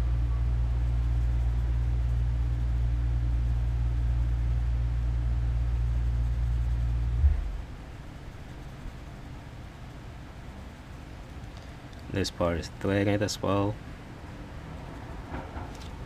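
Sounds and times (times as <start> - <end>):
machine hum: 0.0 - 12.1.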